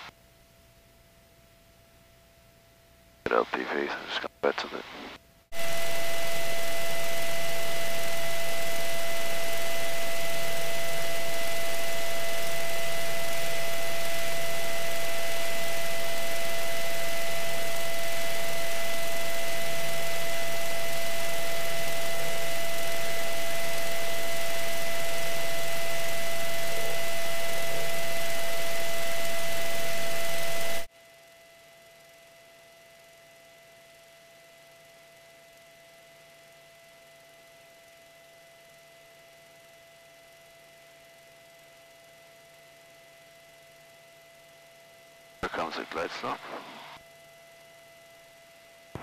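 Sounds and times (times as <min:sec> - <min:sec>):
headset hiss and electrical hum: 0:02.6 - 0:30.9, 0:45.4 - 0:47.0.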